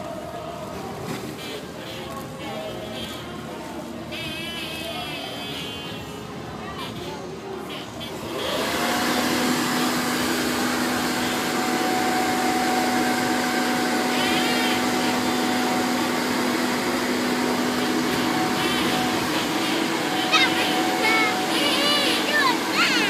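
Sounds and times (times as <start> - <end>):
electric air blower running: 8.3 - 23.0.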